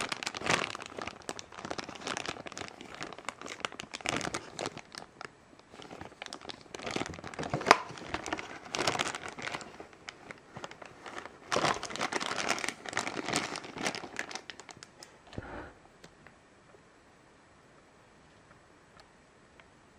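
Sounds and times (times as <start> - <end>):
plastic bag crinkling: 0.0 - 15.3.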